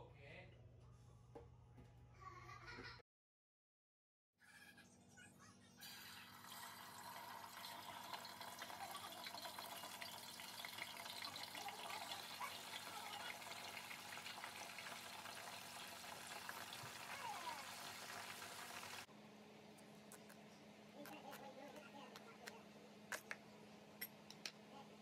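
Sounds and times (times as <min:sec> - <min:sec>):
chicken deep-frying in oil: 0:05.8 - 0:19.1.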